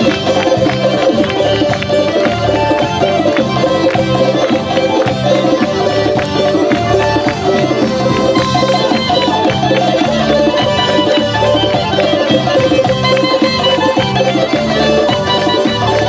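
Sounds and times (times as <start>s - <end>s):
folk dance music: 0.0s - 16.0s.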